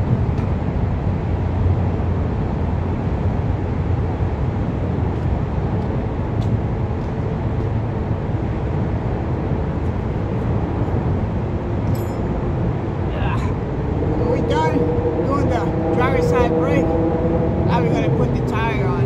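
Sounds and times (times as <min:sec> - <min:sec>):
low rumble of traffic: 0:00.0 - 0:19.0.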